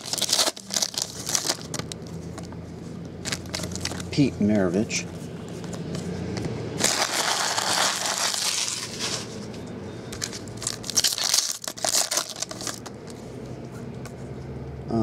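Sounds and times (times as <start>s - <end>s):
foil pack tearing open: 0.0s - 2.1s, 6.8s - 9.2s, 10.3s - 12.9s
foil wrappers crinkling: 0.0s - 2.5s, 3.2s - 4.2s, 6.8s - 9.4s, 10.1s - 13.2s.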